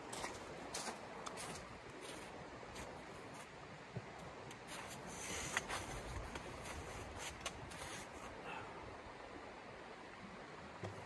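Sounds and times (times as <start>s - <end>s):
rustling: 4.6s - 8.4s.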